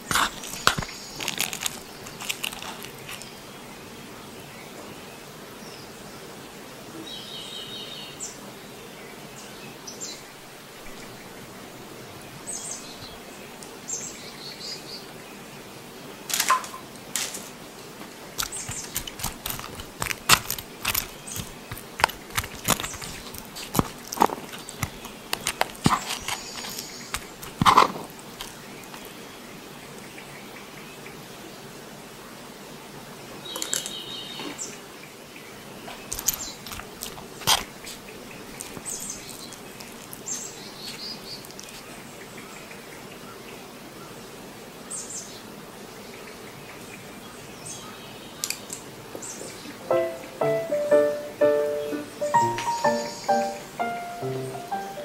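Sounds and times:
tempura crunching: 0.0 - 3.4, 18.2 - 29.2, 35.9 - 41.9.

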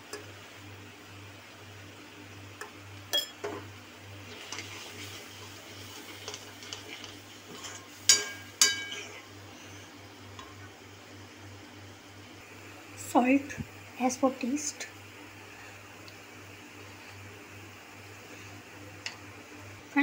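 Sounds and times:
spoon clinking on pan: 3.1 - 3.6, 8.1 - 9.0
spoon stirring in metal pan: 4.3 - 9.2.

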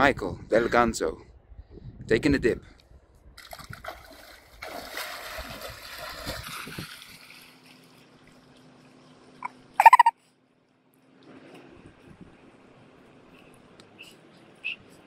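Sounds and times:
water splashing: 3.4 - 9.0
high-pitched cry: 9.8 - 10.1.

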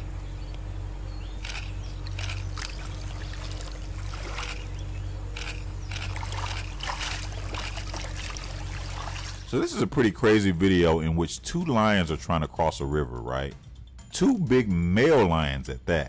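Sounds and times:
steady low hum: 0.0 - 16.0
water splashing and sloshing: 2.0 - 9.7.

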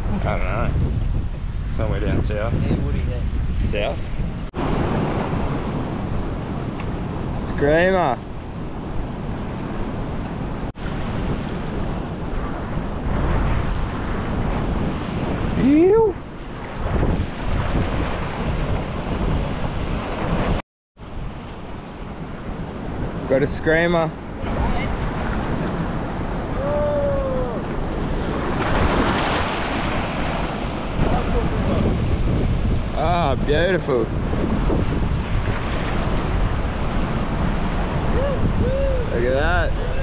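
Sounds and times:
wind buffeting microphone: 0.0 - 40.0
wave splashing: 4.0 - 40.0
seawater rushing over rocks: 22.6 - 33.2.

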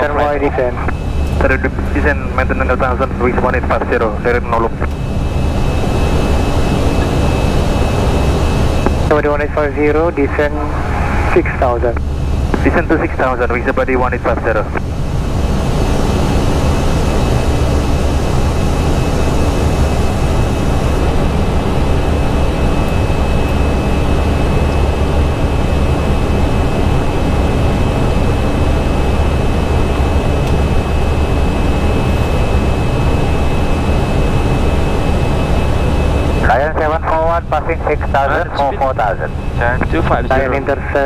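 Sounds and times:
cockpit airflow and engine rumble: 0.0 - 41.0
thin high whine: 29.0 - 41.0.

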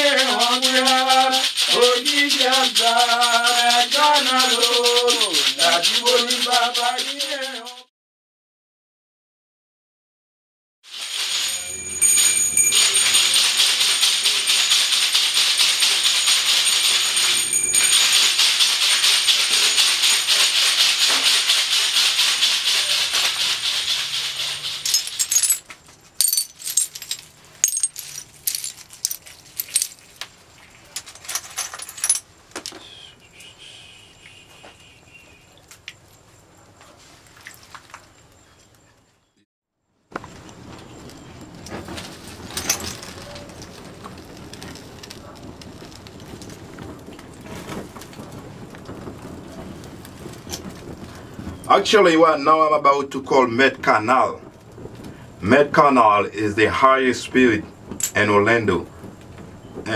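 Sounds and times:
hand rattle shaking: 0.0 - 7.8, 10.9 - 30.2
rattle clicks: 0.1 - 7.8, 11.0 - 30.4.

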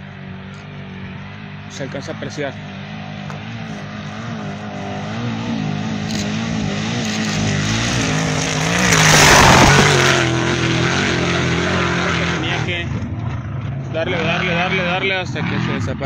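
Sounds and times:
truck engine revving: 3.0 - 16.0
tyres rushing and dirt flung: 7.4 - 10.4.

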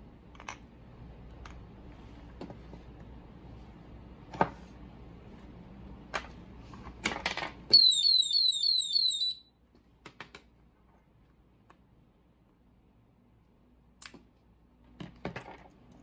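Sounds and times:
electronic alarm chirping: 7.7 - 9.5.

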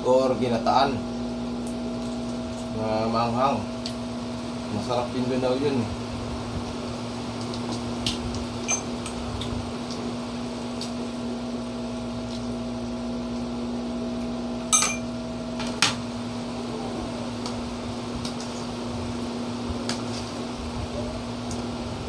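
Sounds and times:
steady electrical hum: 0.0 - 22.0
cutlery clinking against dishes: 14.8 - 15.1.

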